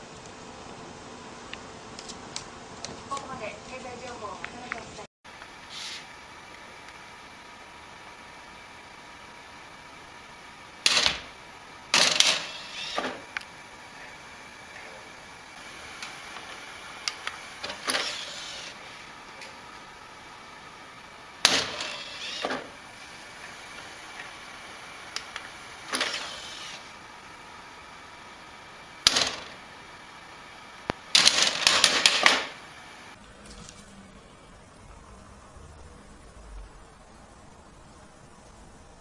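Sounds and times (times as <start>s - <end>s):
dvd drive clicking and whirring: 9.3s - 34.1s.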